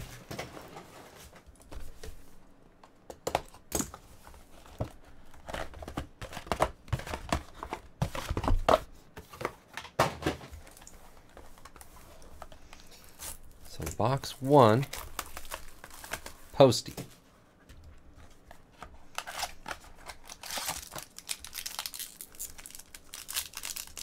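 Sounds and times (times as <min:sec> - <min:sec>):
plastic shrink wrap crinkling: 0:14.6 - 0:16.6, 0:19.2 - 0:24.0.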